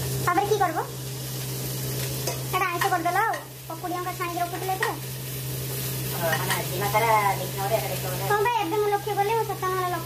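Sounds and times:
food sizzling in a pan: 0.0s - 10.0s.

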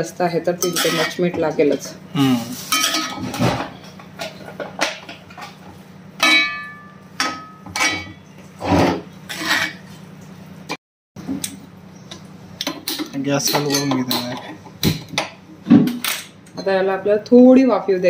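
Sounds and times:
spoon scraping iron pan: 0.6s - 1.3s, 7.4s - 9.8s.

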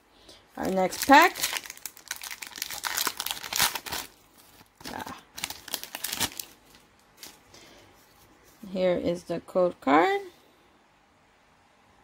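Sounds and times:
foil wrapper crinkling and tearing: 0.6s - 7.4s.

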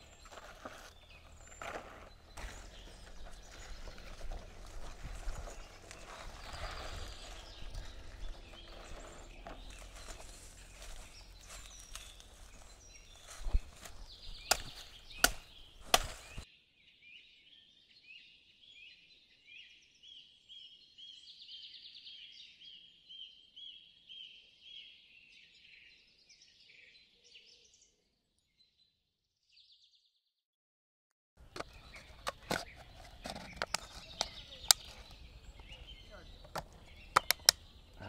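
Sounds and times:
blade chopping strikes: 14.4s - 16.4s
bird chirping repeating phrase: 34.0s - 38.0s.

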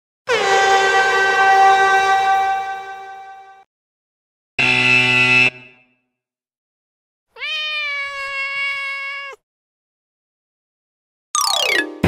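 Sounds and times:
harsh buzzer: 4.6s - 6.1s
cat meowing: 7.3s - 9.4s.

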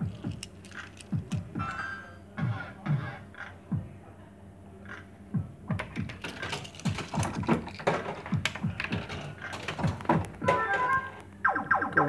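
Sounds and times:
slot machine reels clattering: 0.0s - 1.8s, 5.8s - 11.2s.

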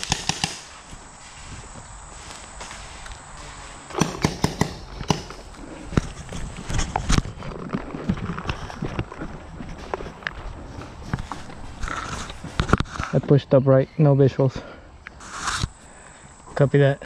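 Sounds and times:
footsteps on dirt path: 0.0s - 13.5s.

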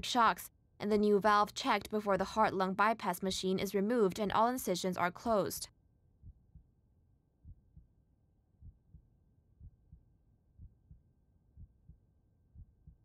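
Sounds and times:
faint heartbeat: 6.2s - 6.7s, 7.4s - 8.0s, 8.6s - 13.0s.

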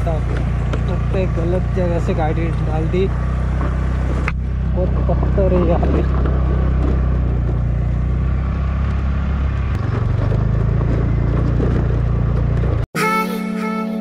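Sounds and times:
scooter engine running: 0.0s - 12.9s
background music: 13.0s - 14.0s.

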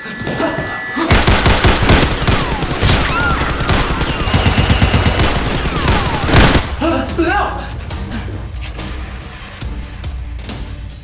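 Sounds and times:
automatic gunfire: 1.1s - 6.7s.

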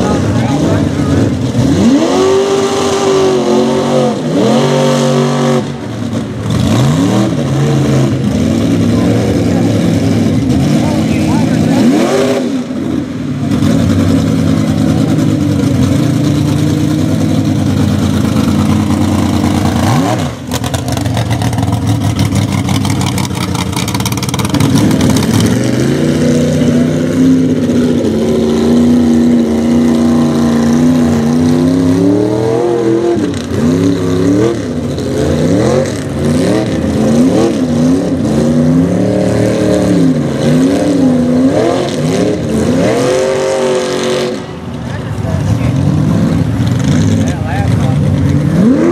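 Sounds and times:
truck engine revving: 0.0s - 48.9s.

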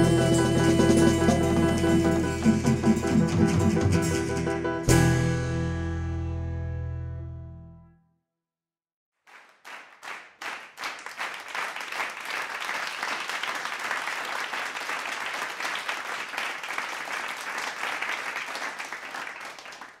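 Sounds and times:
group clapping: 9.2s - 20.0s.

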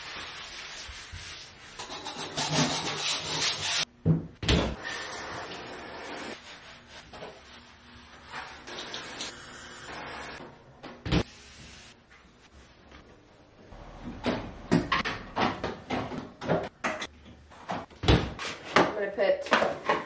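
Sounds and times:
soft wiping strokes: 0.0s - 1.8s
brush scrubbing shower stall: 0.0s - 3.9s, 5.2s - 9.3s.

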